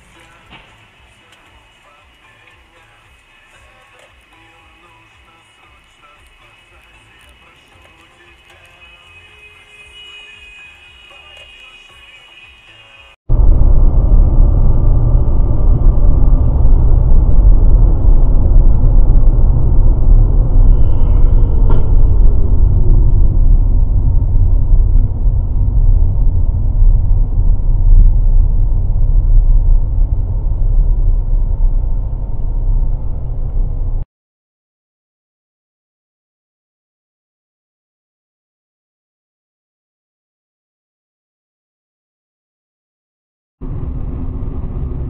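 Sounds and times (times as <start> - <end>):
car engine and tyre noise: 0.0 - 9.8, 12.5 - 34.0, 43.6 - 45.0.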